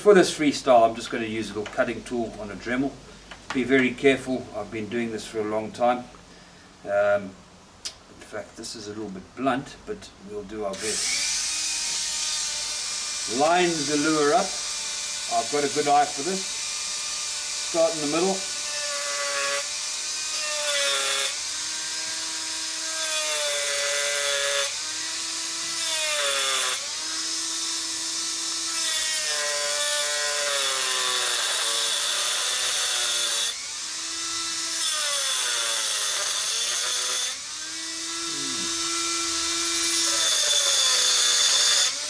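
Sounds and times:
disc hissing cutting wood: 10.7 - 42.0
rotary tool motor whine: 10.8 - 42.0.

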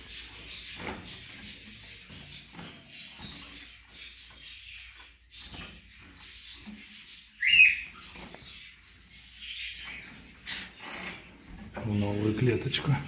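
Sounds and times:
finches chirping: 0.0 - 12.9.

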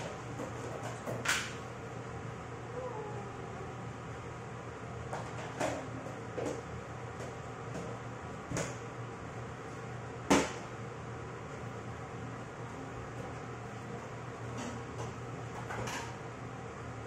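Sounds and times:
steady low hum: 0.0 - 17.0
sharp knocks in kitchen: 10.3 - 10.7.

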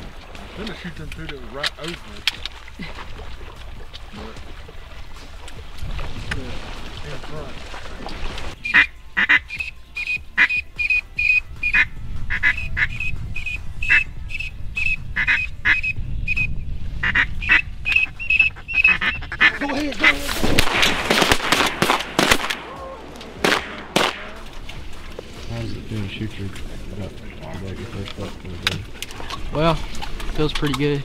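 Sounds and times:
duck quacking: 8.6 - 16.4, 17.0 - 20.3
dense sharp sounds: 20.3 - 26.7.

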